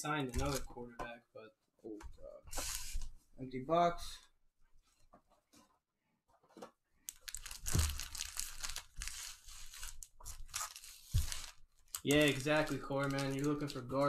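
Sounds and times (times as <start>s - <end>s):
foil packs crinkling: 7.1s - 14.0s.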